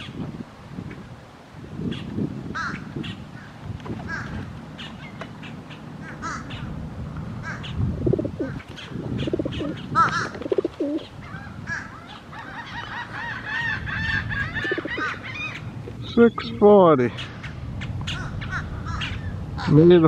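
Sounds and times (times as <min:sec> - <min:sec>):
birds chirping: 0:00.0 - 0:01.1, 0:01.8 - 0:20.0
pigeons cooing: 0:07.4 - 0:19.7.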